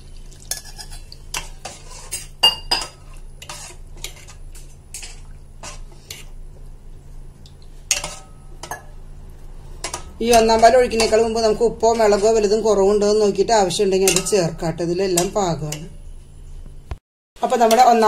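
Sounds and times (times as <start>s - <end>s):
metal spoon scraping a pot: 0.5s - 6.3s, 7.9s - 8.9s, 9.7s - 15.9s.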